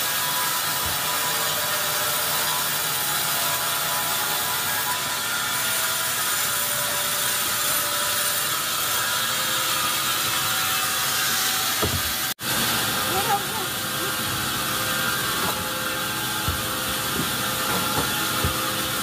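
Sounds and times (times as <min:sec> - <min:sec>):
band saw cutting log: 0:00.0 - 0:19.0
mill machinery running: 0:04.2 - 0:19.0.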